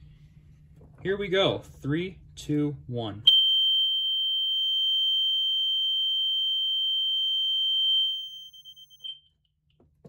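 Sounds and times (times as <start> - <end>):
fire alarm horn tone: 3.3 - 9.2.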